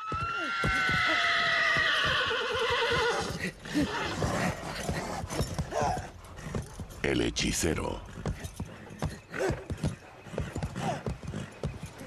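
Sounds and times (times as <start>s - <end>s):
horse whinnying: 0.0s - 6.1s
hooves thudding on ground: 0.0s - 12.0s.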